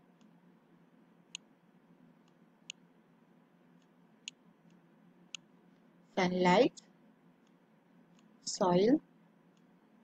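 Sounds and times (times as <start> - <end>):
computer mouse clicking: 7.4 - 8.3, 9.5 - 9.7.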